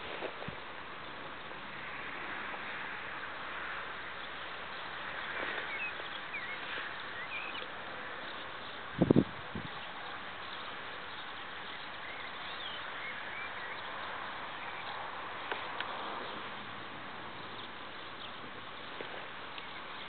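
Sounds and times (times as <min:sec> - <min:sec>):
outdoor background hiss: 0:00.0 - 0:20.0.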